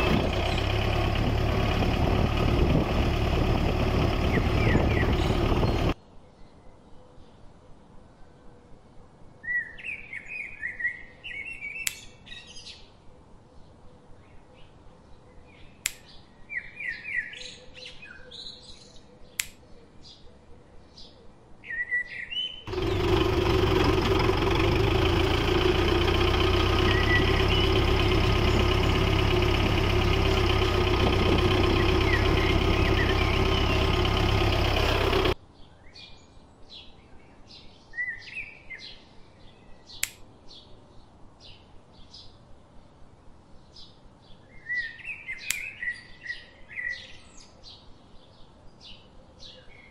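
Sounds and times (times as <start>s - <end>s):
birds chirping: 0.0s - 7.6s, 9.4s - 42.8s
small motor running: 22.7s - 35.4s.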